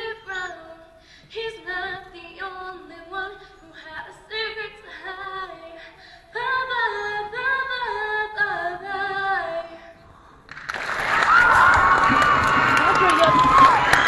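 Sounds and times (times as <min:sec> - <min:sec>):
woman singing unaccompanied: 0:00.0 - 0:10.0
audience cheering and shouting: 0:10.9 - 0:14.0.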